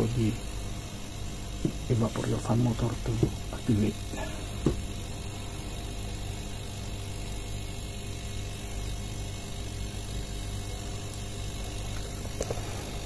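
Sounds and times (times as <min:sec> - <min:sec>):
compressor and fan humming: 0:00.0 - 0:13.0.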